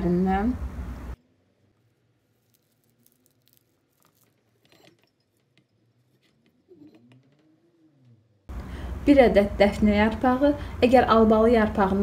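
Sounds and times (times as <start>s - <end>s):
leaves rustling in a glass jar: 1.7s - 6.2s.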